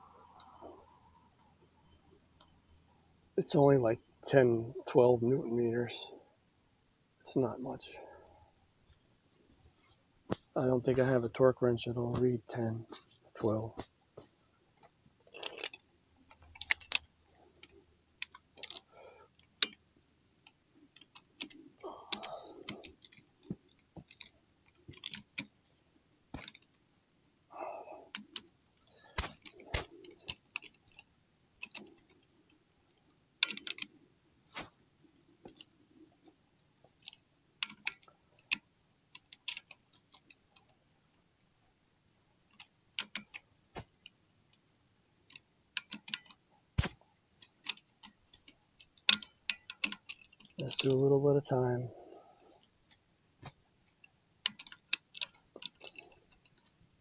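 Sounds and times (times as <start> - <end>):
hand tools clicking on metal: 15.3 - 17.0, 17.6 - 19.8, 21.0 - 25.5, 45.3 - 51.2, 54.4 - 56.6
handling rustles: 28.1 - 31.0, 33.4 - 35.9, 46.0 - 48.6.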